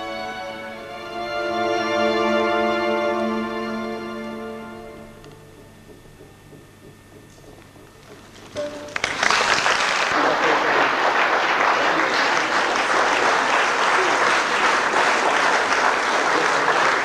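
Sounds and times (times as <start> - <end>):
audience applause: 8.4 - 17.0.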